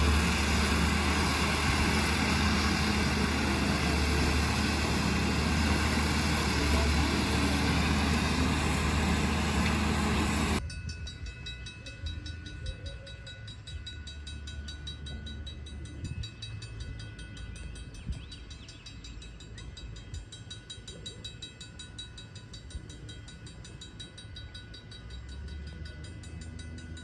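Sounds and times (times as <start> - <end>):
steam locomotive rush: 0.0 - 10.6
crossing bell ringing: 0.0 - 27.0.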